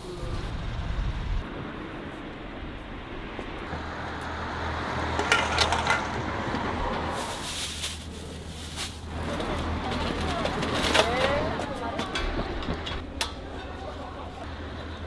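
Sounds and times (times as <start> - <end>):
metal pots clinking: 5.2 - 6.2.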